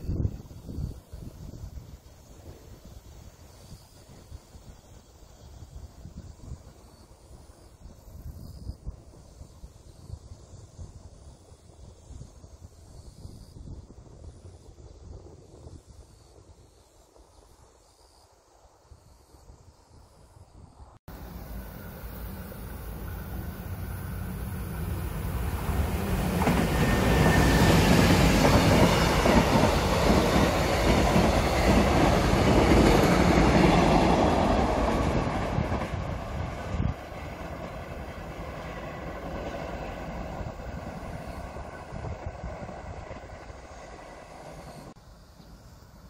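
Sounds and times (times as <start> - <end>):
passenger train passing: 21.1 - 46.0.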